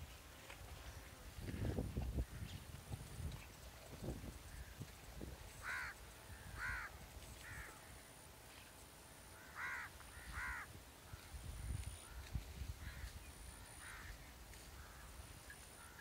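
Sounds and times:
crow cawing: 5.6s - 7.9s, 9.4s - 10.7s, 12.8s - 15.1s, 15.8s - 16.0s.

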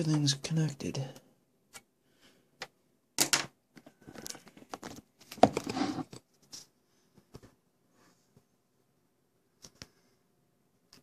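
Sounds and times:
handling rustling and clatter: 3.8s - 7.5s.

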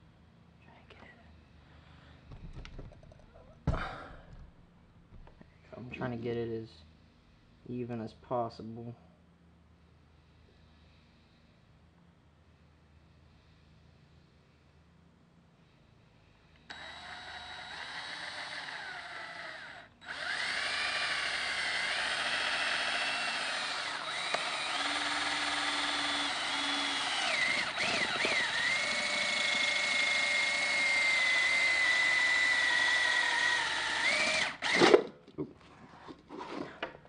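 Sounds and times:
cordless drill whining: 16.7s - 35.1s.

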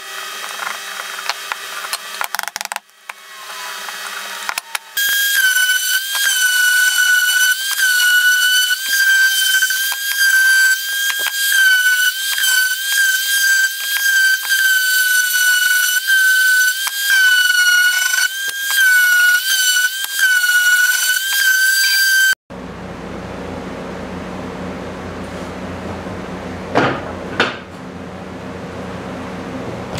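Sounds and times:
router whining cutting wood: 0.0s - 22.4s.

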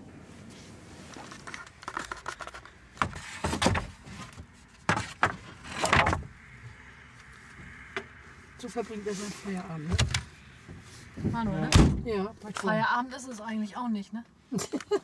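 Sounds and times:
boards sliding: 1.1s - 6.2s.

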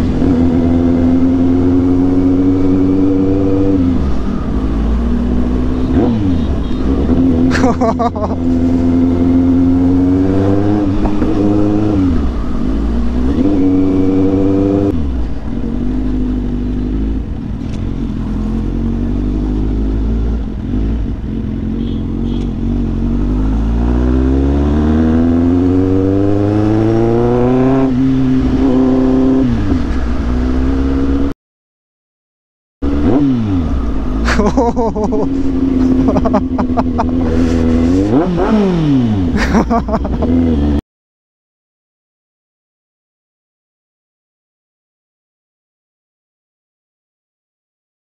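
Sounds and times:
motorcycle engine revving: 0.0s - 31.3s, 32.8s - 40.8s.

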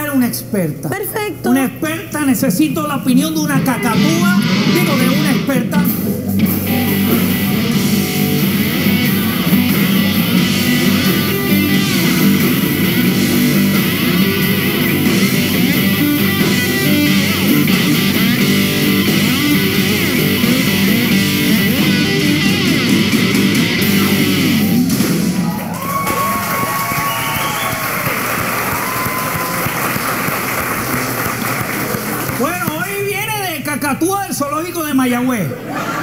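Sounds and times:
loud rock music: 3.3s - 26.0s.

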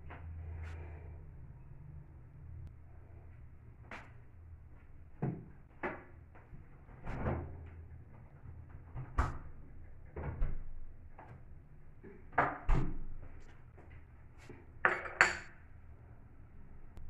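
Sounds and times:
dishes knocking and clattering: 14.9s - 15.5s.

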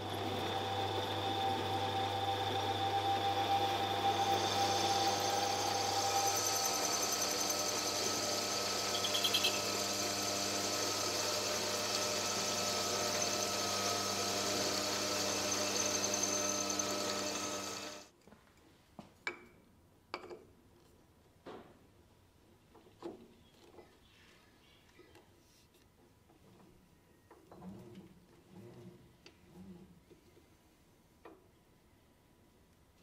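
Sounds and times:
metal lathe whine: 0.0s - 18.1s.

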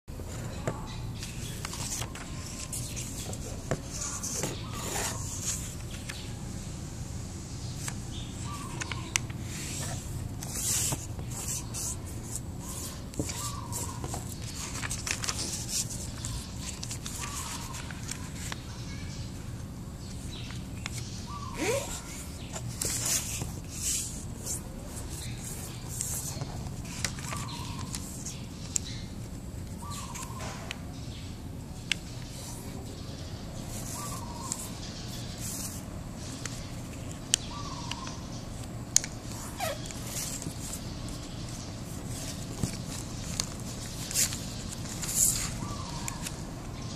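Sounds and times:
paper rustling: 0.2s - 6.3s, 7.8s - 19.0s, 21.7s - 30.7s, 33.5s - 46.9s
short bird calls: 12.6s - 19.3s, 20.4s - 23.4s, 24.0s - 29.2s, 29.8s - 31.0s, 32.3s - 36.8s, 43.9s - 46.9s.

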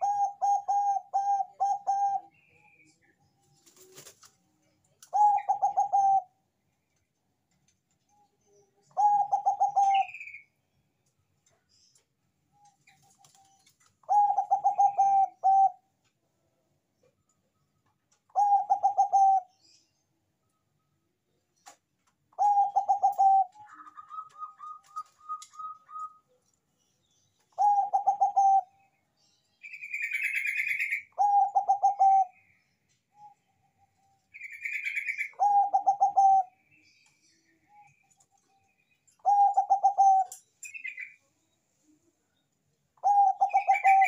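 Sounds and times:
dove cooing: 0.0s - 2.4s, 5.1s - 6.3s, 8.9s - 10.4s, 14.0s - 15.8s, 18.3s - 19.5s, 22.3s - 26.3s, 27.5s - 28.8s, 29.9s - 32.4s, 34.6s - 36.6s, 39.2s - 40.4s, 43.0s - 44.0s
bird chirping trills: 5.0s - 15.9s, 17.0s - 44.0s.

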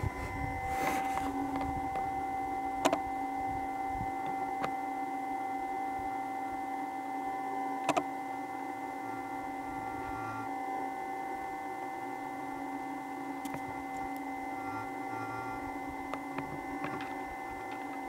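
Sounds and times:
steady hum: 0.0s - 18.0s.

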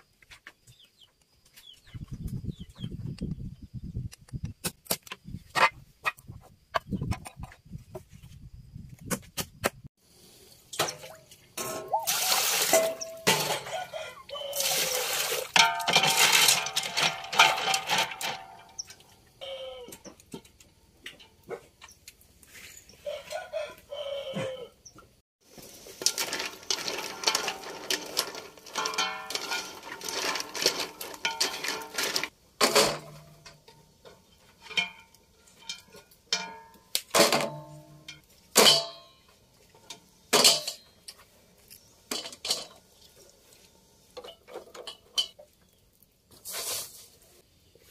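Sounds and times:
bamboo sticks clattering on metal: 10.7s - 22.7s, 25.5s - 43.0s, 44.0s - 47.1s.

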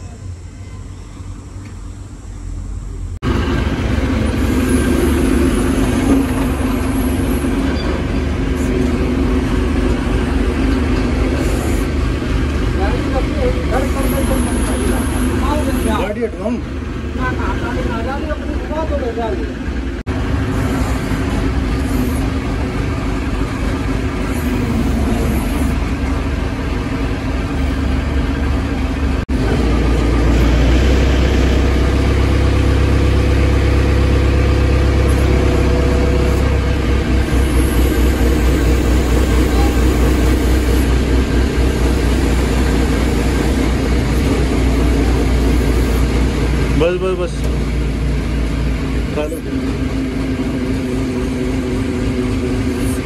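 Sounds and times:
crane diesel engine running: 0.0s - 53.0s.

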